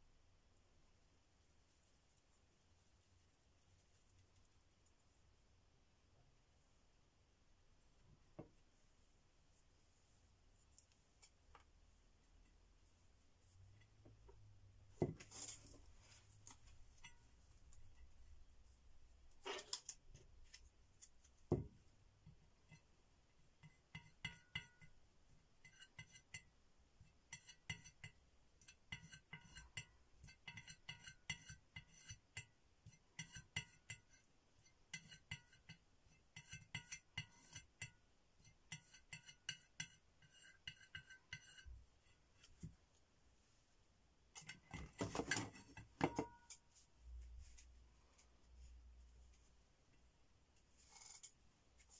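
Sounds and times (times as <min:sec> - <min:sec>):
tool clinking on ceramic palette: 0:44.4 - 0:46.7.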